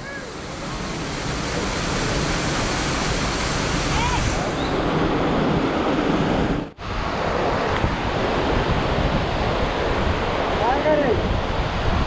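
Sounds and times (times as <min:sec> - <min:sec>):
waterfall rushing: 0:00.0 - 0:06.1
wind on microphone: 0:00.0 - 0:12.0.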